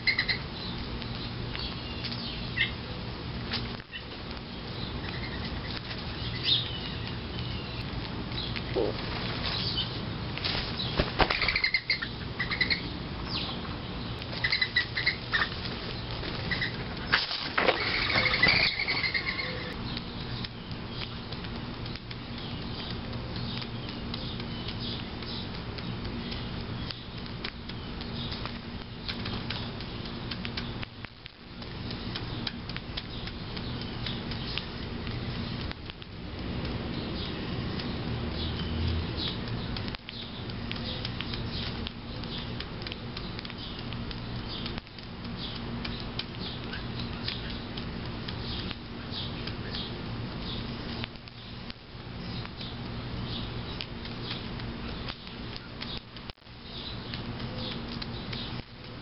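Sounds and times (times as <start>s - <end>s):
doves pecking seed from plate: 0.0s - 59.0s
steady low hum: 0.0s - 59.0s
faint bird chirps: 17.8s - 21.3s.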